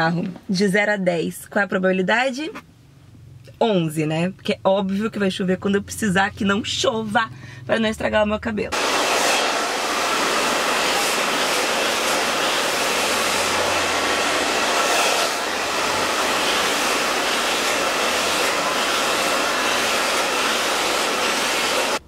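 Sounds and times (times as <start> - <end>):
hair dryer running: 8.7 - 22.0.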